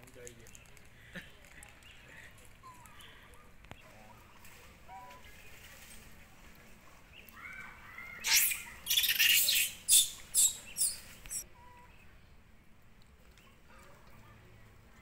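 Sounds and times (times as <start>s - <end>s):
macaque squeals and screams: 8.0s - 11.4s.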